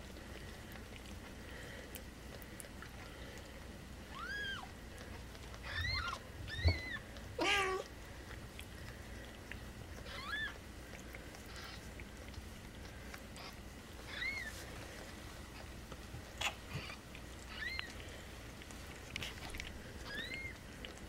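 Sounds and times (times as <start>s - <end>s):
kittens mewing: 4.1s - 4.8s, 5.6s - 7.9s, 10.0s - 10.6s, 11.4s - 12.2s, 13.3s - 14.5s, 16.4s - 18.0s, 20.0s - 20.6s.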